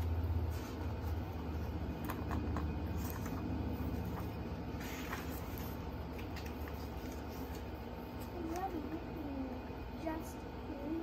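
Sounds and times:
low background hum: 0:00.0 - 0:11.0
book pages rustling: 0:00.4 - 0:08.7.

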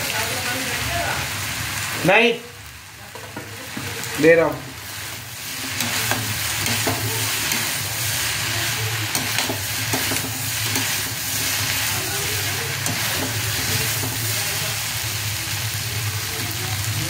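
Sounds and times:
food sizzling in a pan: 0:00.0 - 0:17.0
spatula scraping a pan: 0:05.4 - 0:14.4.

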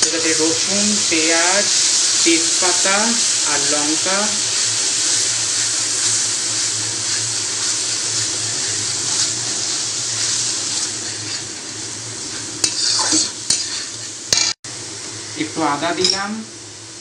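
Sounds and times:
paste sizzling in hot oil: 0:00.0 - 0:17.0
metal spatula scraping pan: 0:12.6 - 0:14.6.

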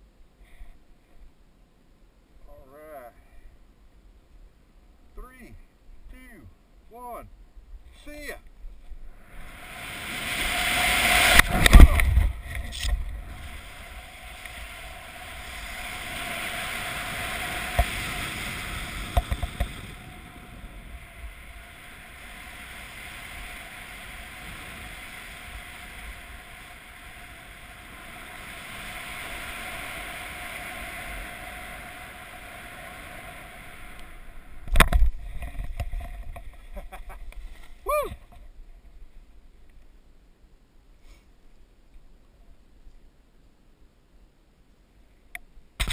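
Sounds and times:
wind rushing over microphone: 0:08.7 - 0:38.4
camera handling noise: 0:11.4 - 0:13.1.

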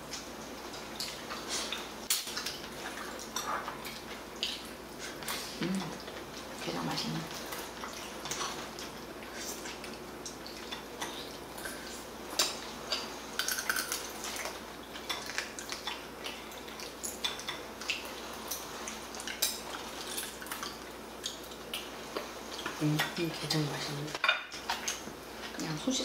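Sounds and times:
eating clicks and smacks: 0:09.6 - 0:21.9.

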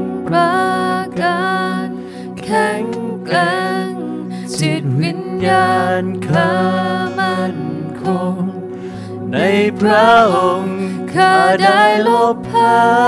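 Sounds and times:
woman singing with vibrato: 0:00.0 - 0:08.5
acoustic guitar chords: 0:04.6 - 0:13.0.

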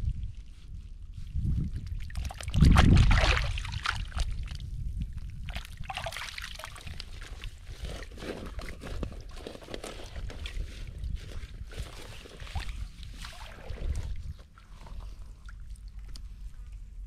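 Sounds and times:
water and mud sloshing: 0:00.0 - 0:17.0
water splashing: 0:02.0 - 0:04.4, 0:12.5 - 0:14.4.

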